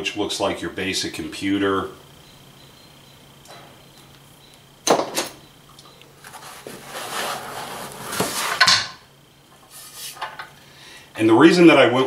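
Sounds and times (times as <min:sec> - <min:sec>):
parts rubbing in foam packing: 0:06.2 - 0:08.6, 0:09.6 - 0:10.2
loud scrape: 0:06.2 - 0:08.7.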